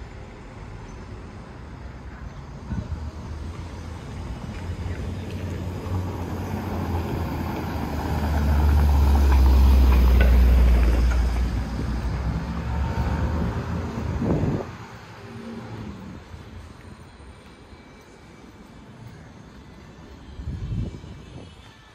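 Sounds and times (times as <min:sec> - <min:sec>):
vehicle passing by: 0:03.1 - 0:16.4.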